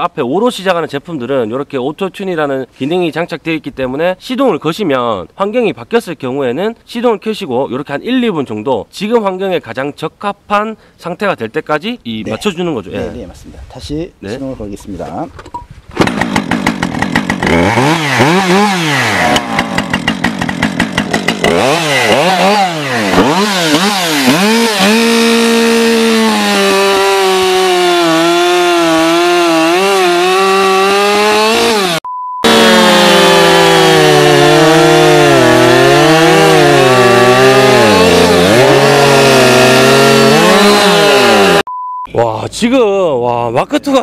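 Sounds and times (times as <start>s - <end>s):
chainsaw revving and cutting log: 16.0s - 41.7s
brief beep: 32.0s - 32.5s, 41.7s - 42.1s.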